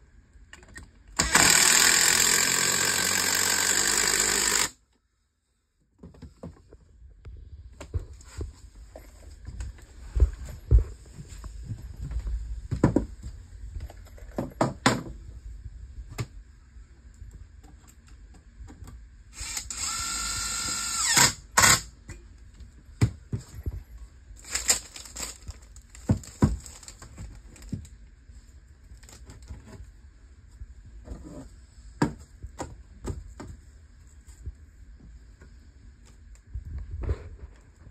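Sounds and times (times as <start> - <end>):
cordless drill motor running: 1.2 - 4.8, 19.4 - 21.8
drill click: 1.2 - 4.8
knocks and clatter of wood and tools: 7.8 - 15.2, 26.0 - 27.8, 31.0 - 33.6.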